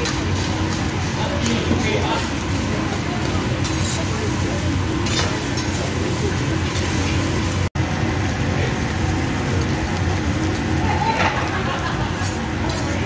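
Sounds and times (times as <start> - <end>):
rice sizzling on a griddle: 0.0 - 13.0
metal spatulas scraping and chopping: 3.6 - 4.1, 5.0 - 5.9, 12.2 - 13.0.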